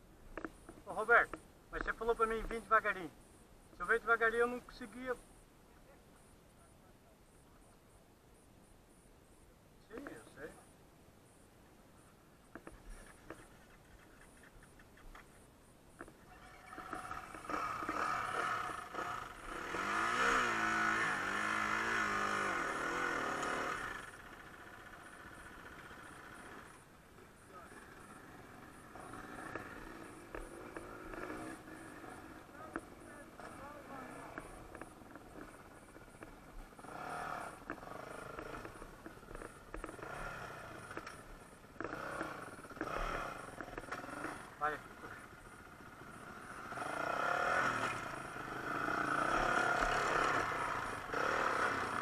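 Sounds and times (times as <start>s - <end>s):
dirt bike engine revving: 16.4s - 52.0s
knocks of tyres and stones: 37.6s - 44.4s.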